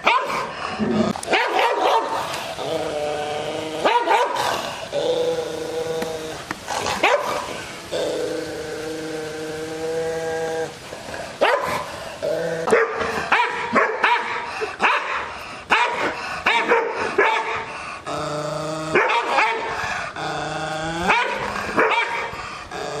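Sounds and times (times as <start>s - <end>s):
dog barking: 0.0s - 0.5s, 1.3s - 2.2s, 3.9s - 4.4s, 7.0s - 7.4s, 11.4s - 11.8s, 12.7s - 17.6s, 19.0s - 19.7s, 21.1s - 22.3s
dog growling: 0.0s - 13.4s, 16.0s - 23.0s.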